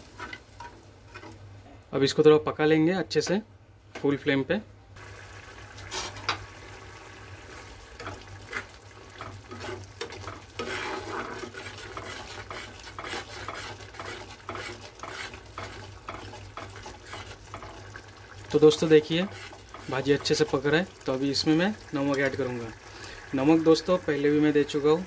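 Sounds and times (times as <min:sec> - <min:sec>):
metal spatula scraping pan: 0:00.0 - 0:01.4, 0:05.9 - 0:06.4, 0:08.0 - 0:18.0, 0:18.7 - 0:20.5
bubbling sizzle: 0:05.0 - 0:25.0.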